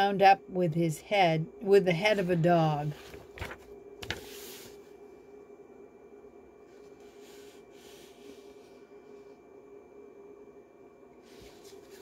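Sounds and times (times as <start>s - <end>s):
electrical hum: 0.0s - 12.0s
paper book rustling: 2.0s - 4.9s, 11.3s - 12.0s.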